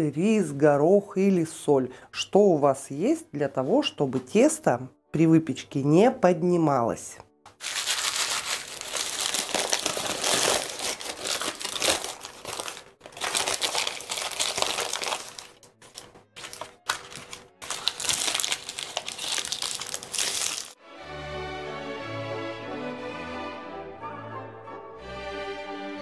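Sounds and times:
baking parchment crinkling: 7.6s - 20.8s.

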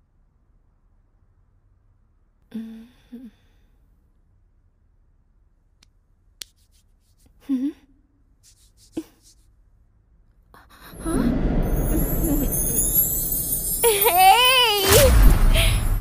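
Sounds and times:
woman sighing sleepily: 2.5s - 3.7s, 10.6s - 14.6s.

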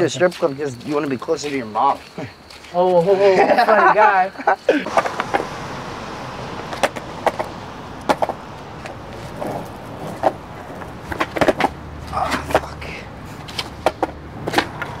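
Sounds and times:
low street noise hum: 0.0s - 15.0s
skateboard clacks on pavement: 4.9s - 5.6s, 6.6s - 15.0s.

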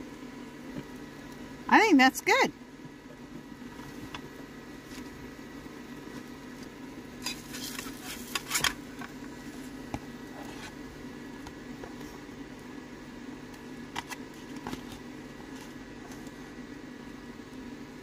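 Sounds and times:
electric fan humming: 0.0s - 18.0s
metal spatula scraping frying pan: 7.2s - 8.6s.

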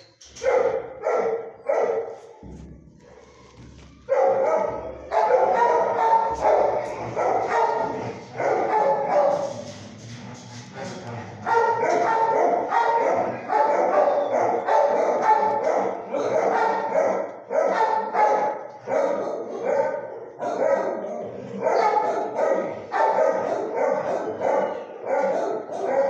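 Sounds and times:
dogs barking: 0.3s - 10.1s, 10.7s - 26.0s.

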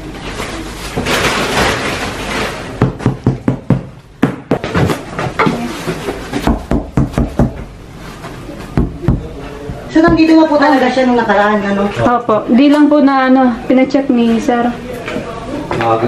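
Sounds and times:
plastic bags and cardboard rustling: 0.0s - 3.2s, 4.7s - 6.6s, 7.6s - 8.8s.

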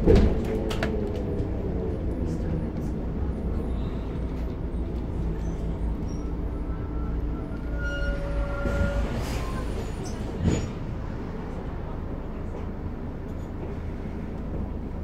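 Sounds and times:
bus diesel engine running: 0.0s - 7.7s
road rumble: 0.0s - 15.0s
faint squeal: 5.3s - 10.2s.

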